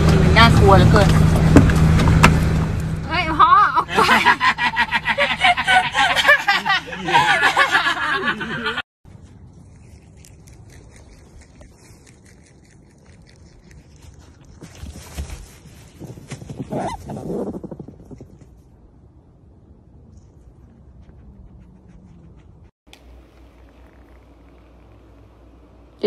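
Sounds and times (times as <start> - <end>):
faint outdoor background: 0.0 - 26.0
person laughing hard: 3.5 - 8.8.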